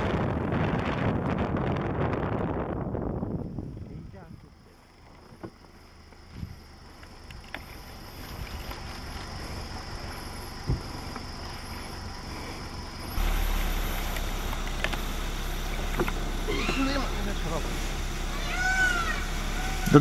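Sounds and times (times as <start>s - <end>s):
vehicle engine idling: 3.1s - 20.0s
faint high hiss: 13.1s - 20.0s.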